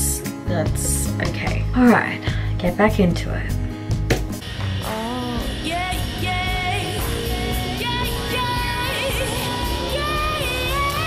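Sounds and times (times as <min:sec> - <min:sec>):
woman singing a pop ballad: 0:04.8 - 0:11.0.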